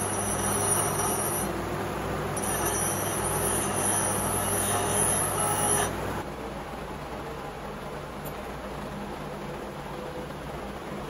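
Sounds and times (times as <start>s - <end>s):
machine humming and rushing: 0.0s - 6.2s.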